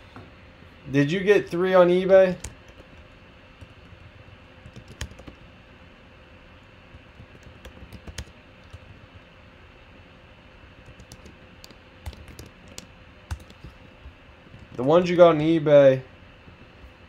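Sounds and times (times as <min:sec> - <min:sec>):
typing on keyboard: 0:02.4 - 0:05.4, 0:06.9 - 0:09.0, 0:10.8 - 0:13.8, 0:14.5 - 0:14.9.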